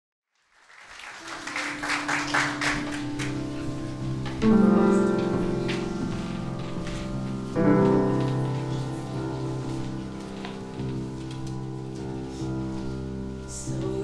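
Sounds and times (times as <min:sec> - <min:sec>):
applause: 0:00.4 - 0:03.7
grand piano chords: 0:01.0 - 0:14.0.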